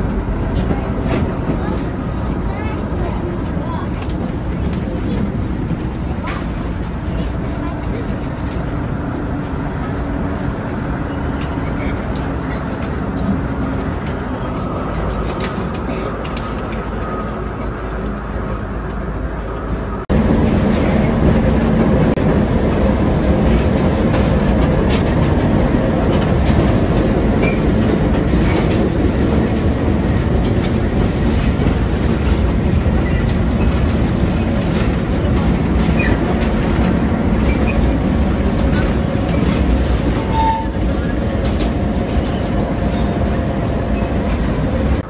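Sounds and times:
diesel locomotive engine: 0.0s - 45.0s
train wheels rumbling on rails: 0.0s - 45.0s.

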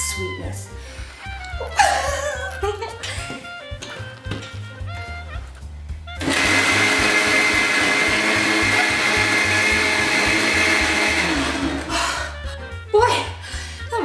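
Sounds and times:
blender running: 6.2s - 12.0s.

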